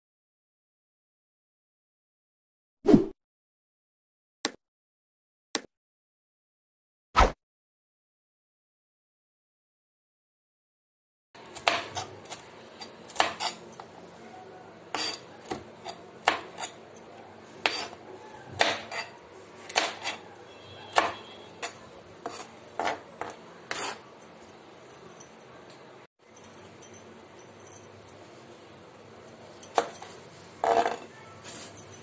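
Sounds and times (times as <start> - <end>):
knife chopping on plastic board: 18.6 - 19.0, 19.7 - 20.2, 20.9 - 21.2.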